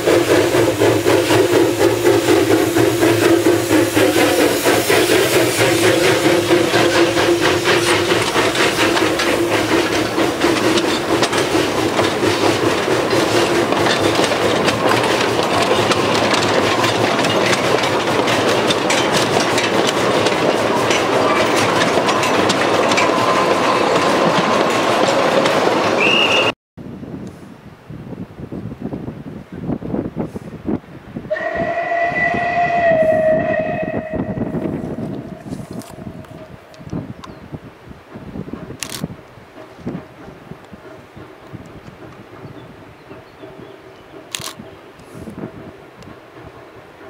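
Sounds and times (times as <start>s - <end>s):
steam locomotive passing: 0.0s - 26.5s, 30.1s - 47.0s
wagon wheels clattering on track: 5.9s - 26.5s.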